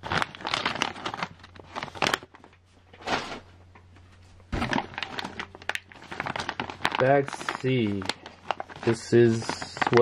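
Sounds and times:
plastic bags crinkling: 0:00.0 - 0:02.6, 0:04.6 - 0:10.0.

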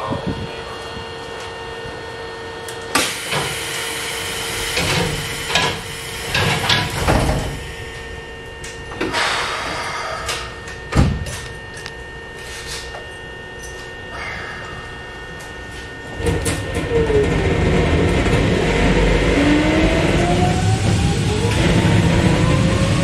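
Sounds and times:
steady hum: 0:00.0 - 0:23.0
train doors closing with thud: 0:04.4 - 0:07.7, 0:08.8 - 0:11.5.

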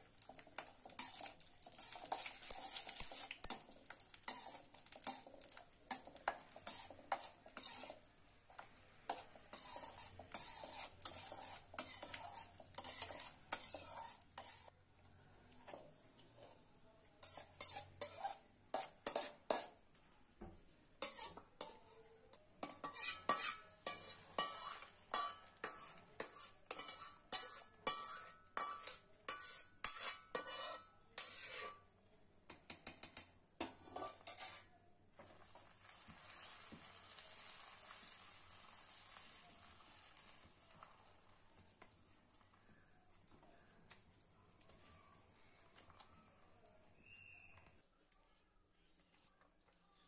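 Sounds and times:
spoon scraping steel pan: 0:00.2 - 0:14.7, 0:17.2 - 0:19.8, 0:21.0 - 0:31.9, 0:32.6 - 0:34.8
sizzling hiss: 0:35.3 - 0:41.4.

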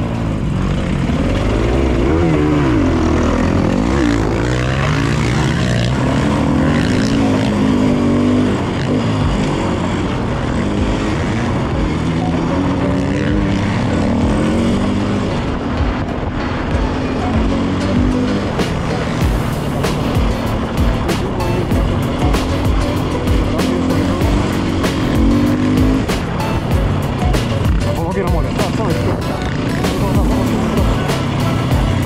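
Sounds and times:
motorcycle engine revving: 0:00.0 - 0:32.0.

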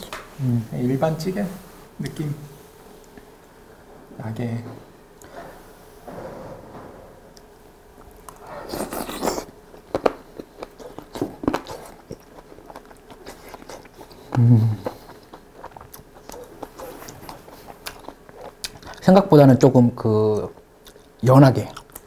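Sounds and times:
chewing with mouth clicks: 0:08.1 - 0:19.1, 0:20.3 - 0:22.0
man humming mm: 0:14.2 - 0:15.1.

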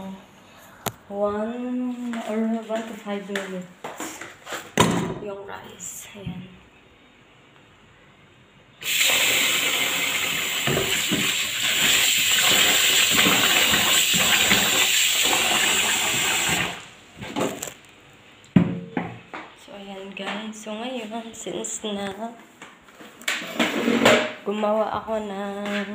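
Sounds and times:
tap water running into bowl: 0:08.8 - 0:16.8.

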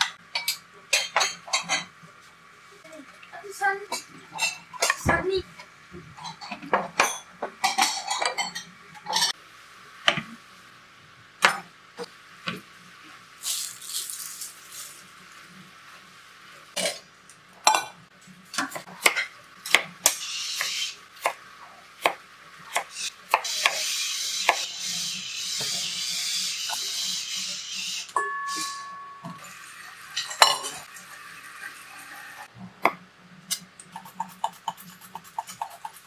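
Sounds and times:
dishes clinking: 0:00.0 - 0:01.9, 0:06.2 - 0:09.4, 0:28.2 - 0:30.9.

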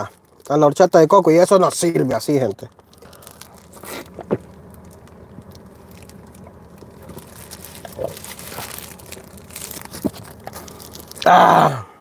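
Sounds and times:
paper wrapper crinkling: 0:00.0 - 0:11.6
steady low hum: 0:00.0 - 0:12.0
person chewing bread: 0:02.8 - 0:11.4.

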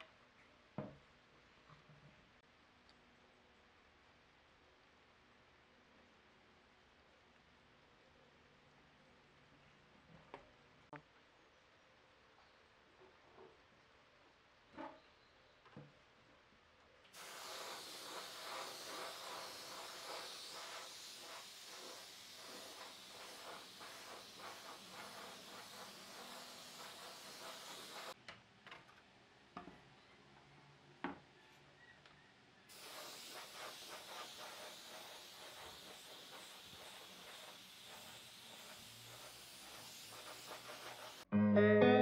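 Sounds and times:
spray gun hissing: 0:17.2 - 0:28.2, 0:32.7 - 0:41.3.

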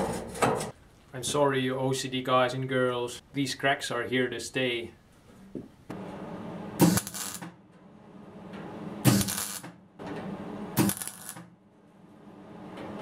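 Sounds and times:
welder bursts on sheet steel: 0:06.8 - 0:07.6, 0:09.0 - 0:09.8, 0:10.7 - 0:11.5.

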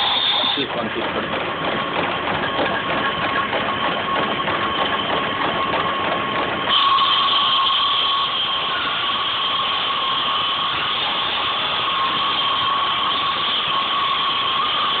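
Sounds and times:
workshop machine running with whine: 0:00.0 - 0:15.0.

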